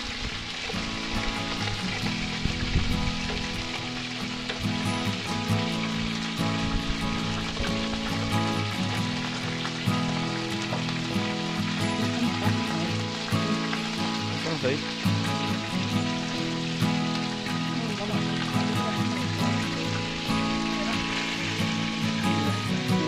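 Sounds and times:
wood fire crackling: 0.0s - 23.0s
music with low held notes: 0.2s - 23.0s.

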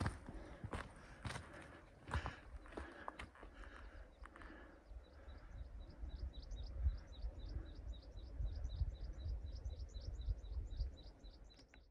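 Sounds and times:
wind rumble on microphone: 5.1s - 11.5s.

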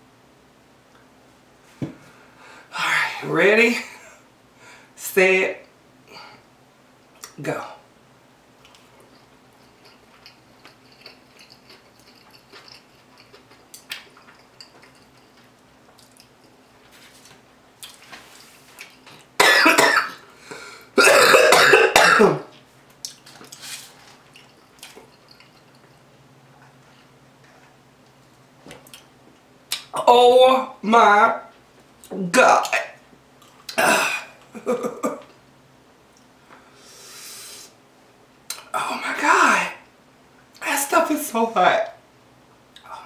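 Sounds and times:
woman eating mouth sounds: 8.6s - 16.7s
woman coughing: 19.4s - 20.2s, 21.0s - 22.5s, 33.8s - 35.3s.

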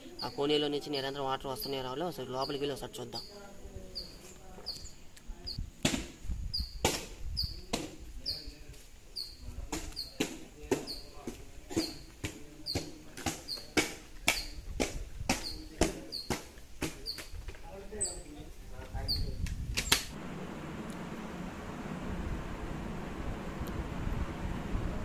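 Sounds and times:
small bird chirping: 0.0s - 5.6s, 6.5s - 10.2s, 10.8s - 14.7s, 15.4s - 16.4s, 17.0s - 19.4s.

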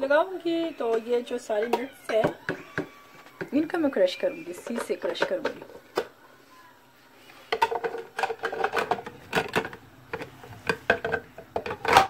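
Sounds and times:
hard plastic parts clacking: 4.5s - 6.2s, 7.5s - 12.0s.

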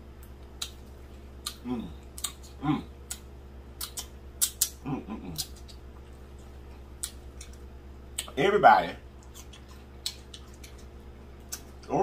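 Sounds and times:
wet mouth smacks: 0.5s - 0.8s, 1.4s - 5.8s, 7.0s - 7.6s, 9.2s - 11.7s
person humming mmm: 1.4s - 3.2s, 3.8s - 5.7s.

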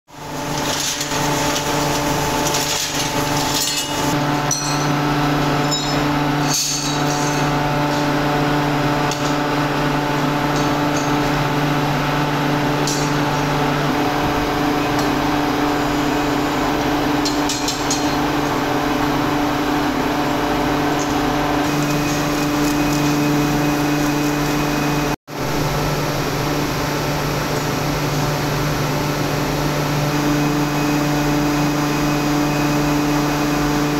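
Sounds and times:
low machinery hum: 0.1s - 33.9s
scrap metal clinking: 0.5s - 5.0s, 5.7s - 7.5s.

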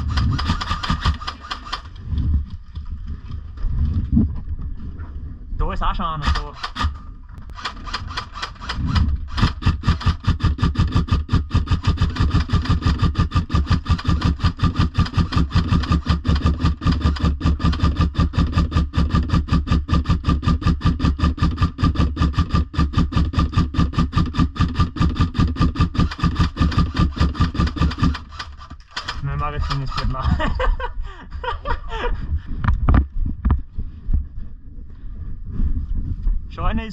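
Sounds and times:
motor running with fast throb: 7.5s - 28.7s.

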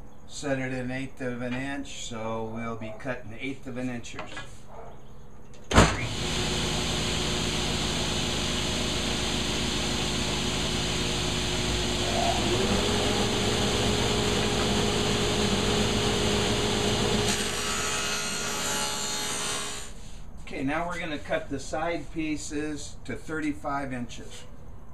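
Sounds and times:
table saw ripping wood: 5.7s - 20.0s.

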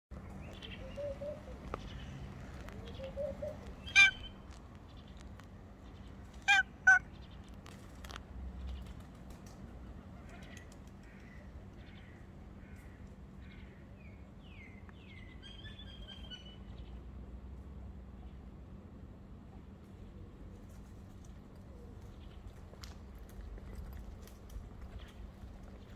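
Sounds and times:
harsh bird calls: 0.5s - 5.2s, 6.0s - 7.5s.

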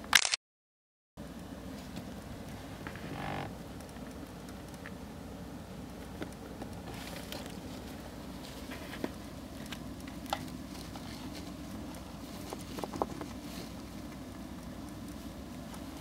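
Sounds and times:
low hum: 1.2s - 16.0s
small clicks and taps: 3.7s - 5.0s, 6.0s - 7.6s
hamster rustling in paper bedding: 10.5s - 14.1s.

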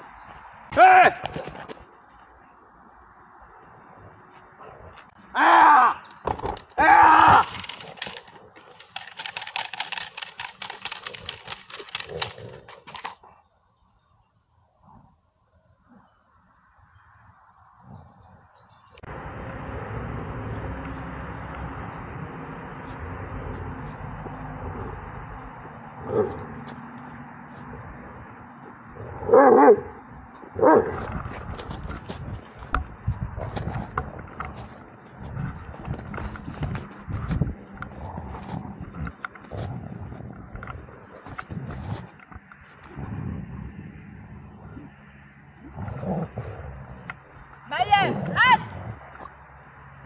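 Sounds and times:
stick clacking and rattling: 6.6s - 13.2s
dog barking: 29.3s - 30.0s, 30.6s - 31.0s.

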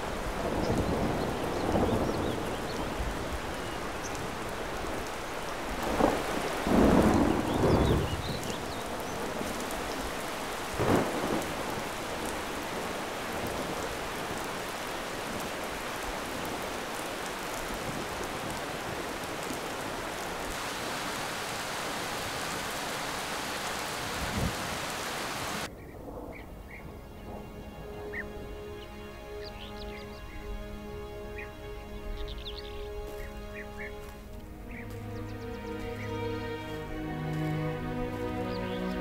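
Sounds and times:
soft music: 0.0s - 13.7s, 26.5s - 39.0s
stream rushing water: 0.0s - 25.7s, 27.0s - 39.0s.

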